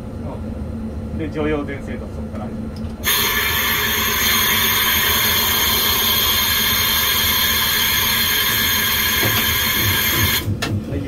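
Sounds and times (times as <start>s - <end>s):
compressed air hissing: 3.0s - 10.5s.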